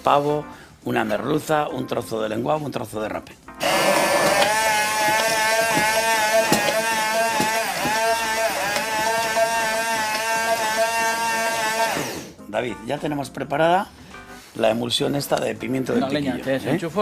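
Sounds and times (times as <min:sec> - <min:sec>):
immersion blender motor whine: 0:03.6 - 0:12.4.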